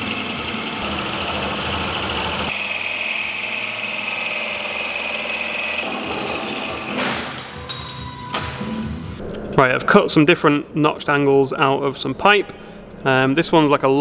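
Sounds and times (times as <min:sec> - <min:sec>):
motor whine: 0:00.0 - 0:06.9.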